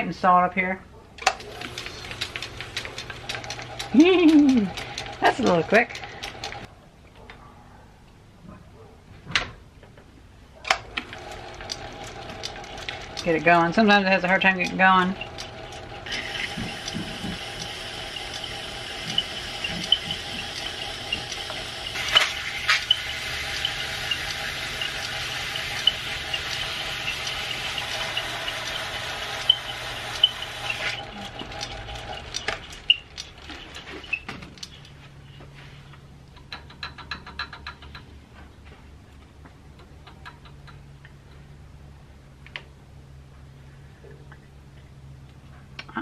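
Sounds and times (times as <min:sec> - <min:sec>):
lathe winding down: 0:01.4 - 0:06.7, 0:10.9 - 0:33.3
lathe whine and ticking: 0:01.5 - 0:06.7, 0:11.0 - 0:33.3
wire brush hissing on spinning rotor: 0:11.3 - 0:32.9.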